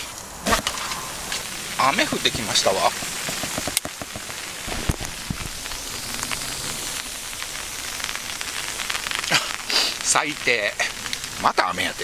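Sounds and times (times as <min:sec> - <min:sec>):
rain on tent fabric: 0:00.0 - 0:12.0
sharp knocks: 0:03.2 - 0:05.0.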